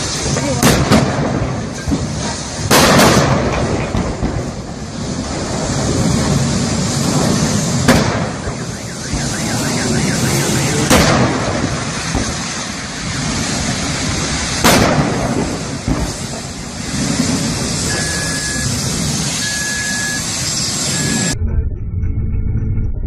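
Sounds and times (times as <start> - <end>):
loud explosion bangs: 0.0 - 19.4
car alarm beeping: 8.3 - 10.9, 17.8 - 22.7.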